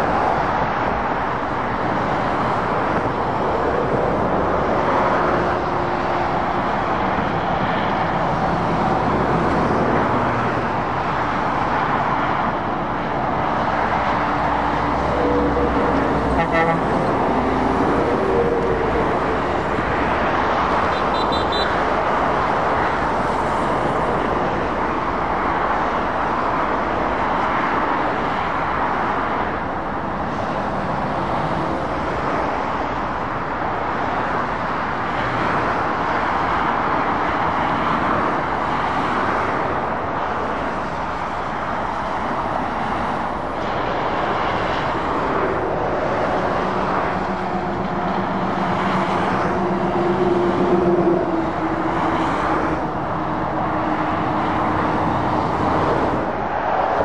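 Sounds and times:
traffic tyre noise: 0.0s - 57.0s
lorry engine hum: 38.2s - 57.0s.

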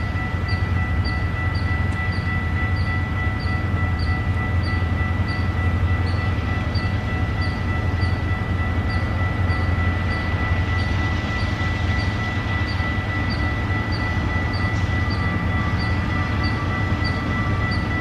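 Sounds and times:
diesel freight train rumble: 0.0s - 18.0s.

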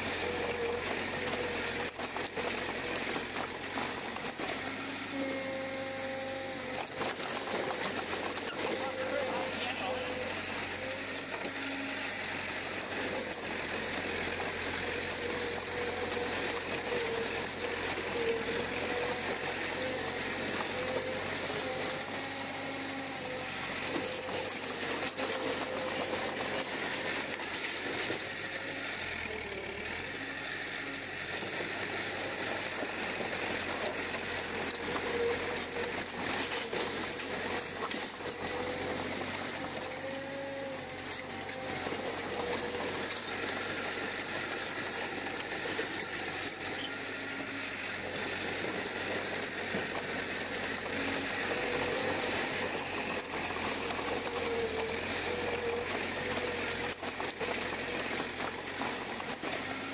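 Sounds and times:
bulldozer diesel engine running: 0.0s - 59.9s.

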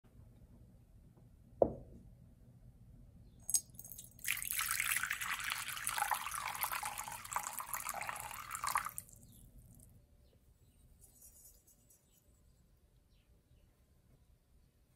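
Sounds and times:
knock: 1.6s - 2.0s
water pouring onto ceramic plate: 3.5s - 9.2s.

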